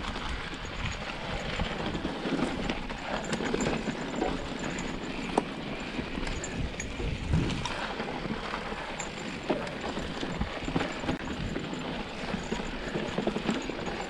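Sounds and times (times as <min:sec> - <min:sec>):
wind rumble on microphone: 0:00.0 - 0:08.8
bike knocking and rattling: 0:00.0 - 0:14.0
bike tyres on dirt and stones: 0:00.0 - 0:14.0.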